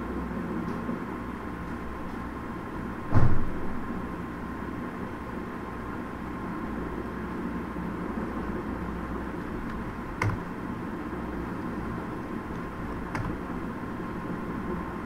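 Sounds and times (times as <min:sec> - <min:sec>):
background hum and hiss: 0:00.0 - 0:15.0
keyboard key presses: 0:09.6 - 0:10.5, 0:12.5 - 0:13.4.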